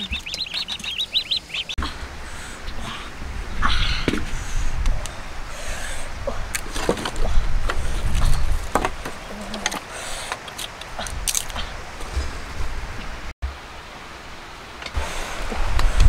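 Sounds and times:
dry sticks snapping: 0:06.5 - 0:11.7.

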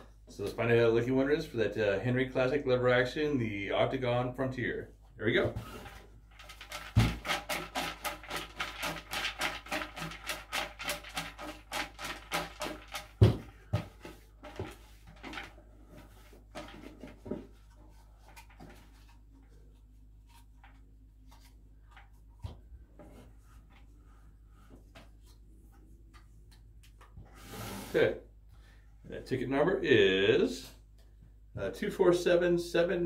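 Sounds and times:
bucket thumps: 0:05.4 - 0:15.6
tickets rattling in shaken bucket: 0:05.6 - 0:17.6.

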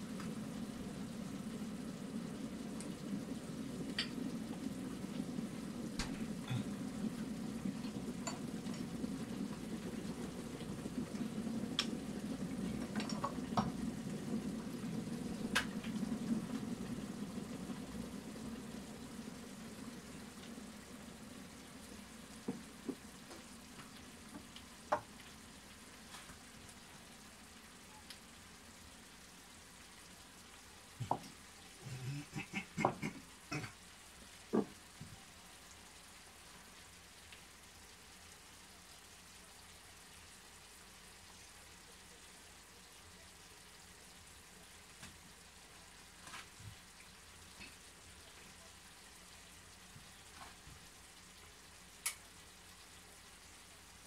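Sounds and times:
food sizzling in a frying pan: 0:00.0 - 0:54.0
bottles knocking on counter: 0:34.5 - 0:34.7.

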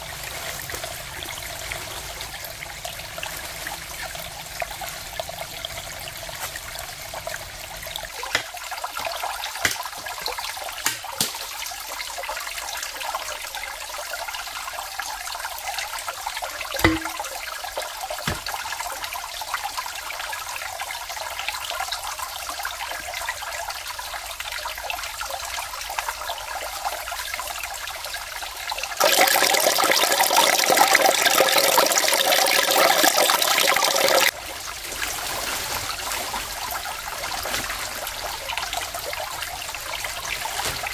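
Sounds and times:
water drips and taps: 0:08.1 - 0:12.4, 0:16.7 - 0:19.1.

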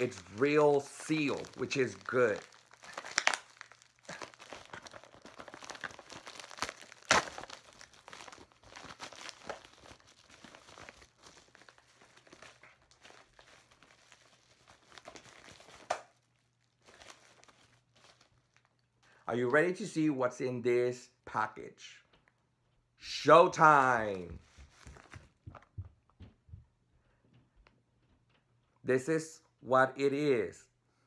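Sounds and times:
envelope tearing: 0:00.0 - 0:18.7
packing crinkling: 0:00.0 - 0:19.3, 0:24.0 - 0:25.7.

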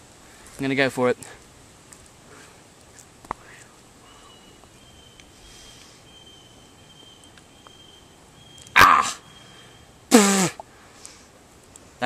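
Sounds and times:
faint high insect tone: 0:03.4 - 0:10.1
man gagging cry: 0:08.8 - 0:09.2.

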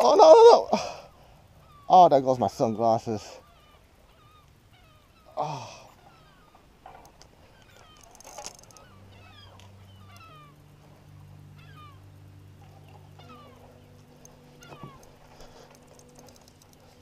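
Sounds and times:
faint low hum: 0:00.0 - 0:17.0
gulls calling: 0:00.0 - 0:17.0.

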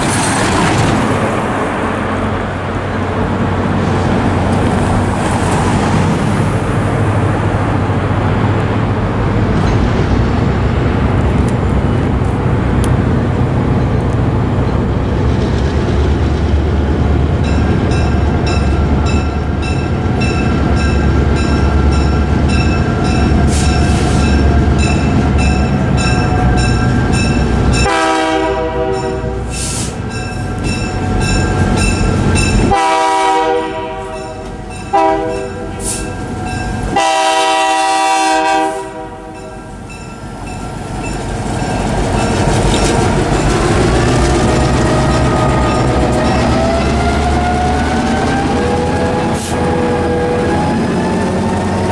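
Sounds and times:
crossing warning bell ringing: 0:17.4 - 0:33.1, 0:33.8 - 0:37.6, 0:38.7 - 0:44.1, 0:45.2 - 0:47.0
locomotive horn blasts: 0:27.8 - 0:29.5, 0:32.6 - 0:36.0, 0:36.9 - 0:39.6
diesel engines: 0:39.7 - 0:51.9.

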